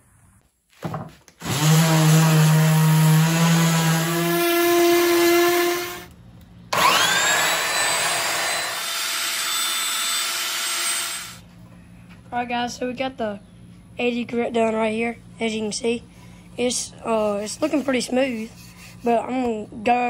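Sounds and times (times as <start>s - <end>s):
power sander on wood: 1.4s - 6.1s, 6.8s - 11.4s.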